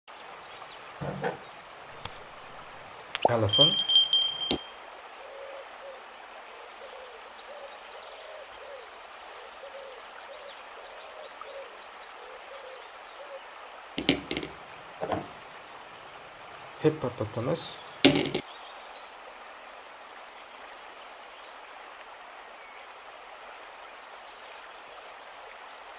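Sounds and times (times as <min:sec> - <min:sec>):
steady outdoor hiss: 0:00.1 - 0:25.9
plastic toy knocking in basket: 0:14.0 - 0:15.3, 0:18.1 - 0:18.4.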